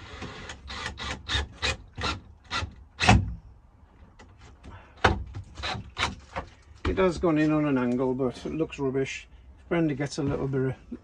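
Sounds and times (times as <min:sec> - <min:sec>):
drill driving screw into wood: 0:00.0 - 0:03.3, 0:05.6 - 0:06.2.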